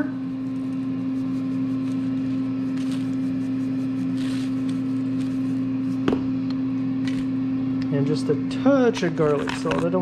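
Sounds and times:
appliance electrical hum: 0:00.0 - 0:10.0
pepper shaker shaking: 0:01.1 - 0:05.4.

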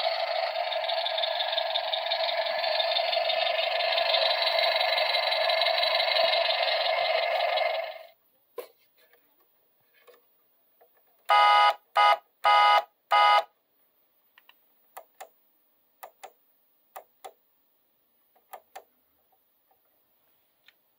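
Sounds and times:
electronic buzzer beeps: 0:11.2 - 0:13.6.

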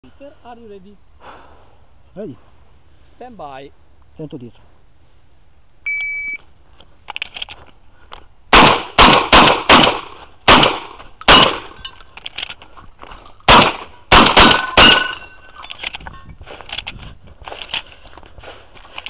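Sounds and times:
shotgun shots: 0:08.5 - 0:11.8, 0:13.5 - 0:15.2.

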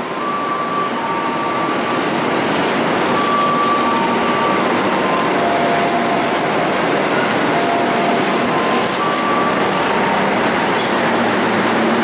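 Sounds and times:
train wheels on rails: 0:00.0 - 0:12.0
high-pitched wheel squeals: 0:03.1 - 0:06.7, 0:07.5 - 0:10.1.

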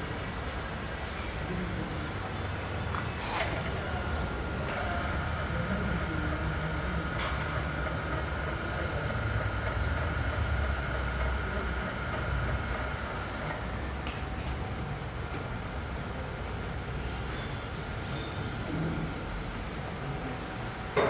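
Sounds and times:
machine motor humming: 0:02.5 - 0:16.1.

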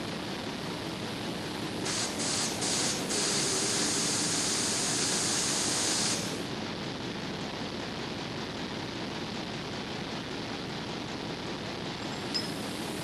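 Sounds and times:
air hissing: 0:01.8 - 0:06.4.

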